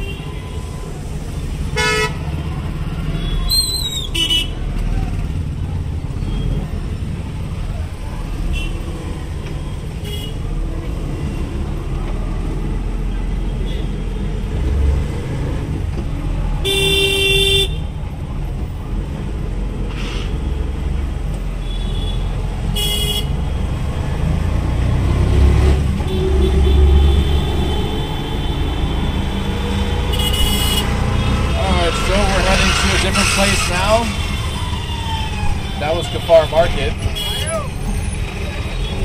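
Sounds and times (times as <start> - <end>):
traffic engines rumbling: 0.0 - 39.0
vehicle horns honking: 1.7 - 2.2, 4.1 - 4.6, 10.0 - 10.4, 16.6 - 17.8, 21.6 - 23.4, 26.0 - 29.2, 30.0 - 34.7, 37.0 - 37.6.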